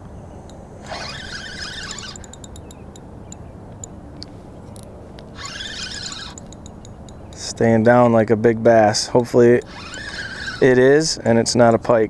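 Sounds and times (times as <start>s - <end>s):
light reel ticks: 0.5s - 11.9s
fishing reel whirring: 0.8s - 3.0s, 5.3s - 8.0s, 8.8s - 11.4s.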